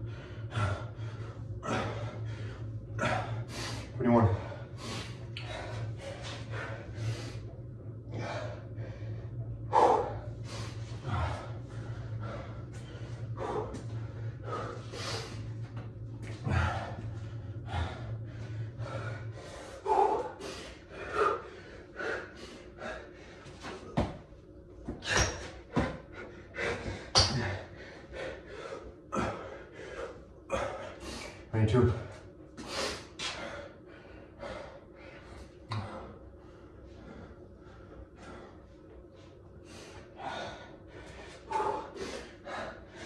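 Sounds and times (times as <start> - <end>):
low steady hum: 0.0 - 43.0
man breathing hard and fast: 0.0 - 43.0
hands and feet thudding on floor: 23.9 - 24.2.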